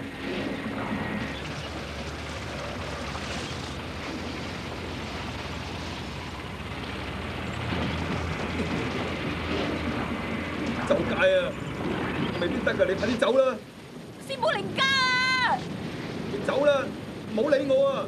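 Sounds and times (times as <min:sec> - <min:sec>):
low hum: 0:00.0 - 0:14.2
noisy rumble: 0:00.0 - 0:18.0.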